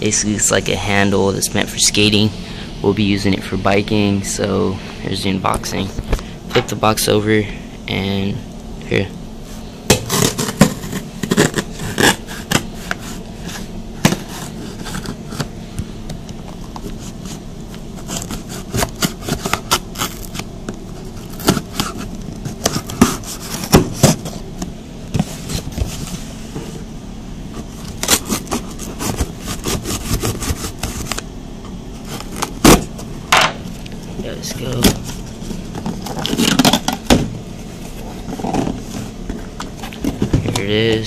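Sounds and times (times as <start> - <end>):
steady low hum: 0.0 - 41.0
cardboard scraping and crackling: 9.9 - 15.5, 16.5 - 24.4, 27.5 - 31.2, 31.9 - 33.1, 34.2 - 41.0.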